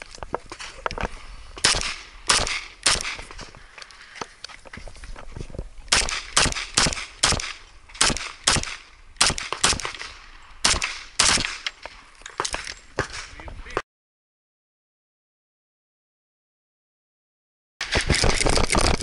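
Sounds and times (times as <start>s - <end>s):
pistol shots with ring: 1.6s - 3.2s, 5.9s - 11.6s.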